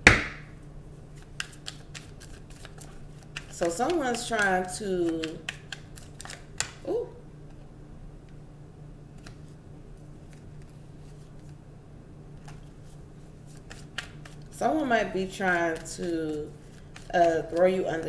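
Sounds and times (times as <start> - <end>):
cards snapping and tapping: 1.2 - 6.8, 13.5 - 14.5, 16.7 - 17.6.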